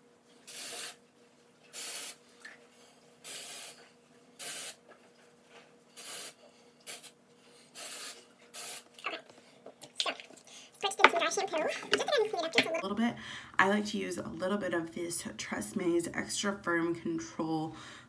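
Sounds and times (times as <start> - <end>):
aerosol spray hissing: 7.8 - 8.8.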